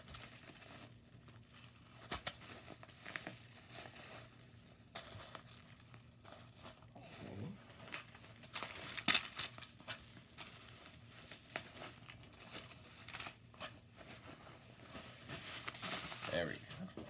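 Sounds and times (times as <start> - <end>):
plastic wrapping crinkling: 0.0 - 16.9.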